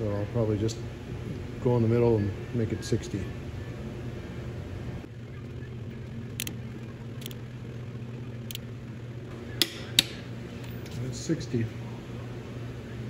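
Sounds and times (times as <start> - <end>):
steady low hum: 0.0 - 13.0
torque wrench clicking: 6.4 - 6.6, 7.2 - 7.4.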